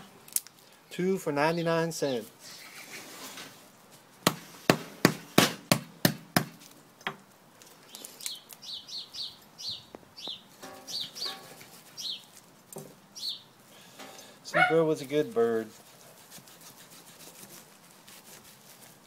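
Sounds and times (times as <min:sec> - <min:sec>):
bird chirping high falling notes: 0:08.7 - 0:12.2.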